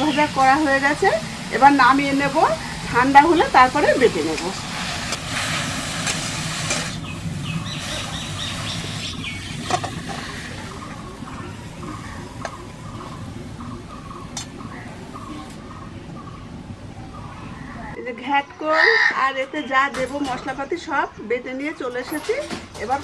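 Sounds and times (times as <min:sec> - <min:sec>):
leaves sizzling in a pan: 0:00.0 - 0:15.7.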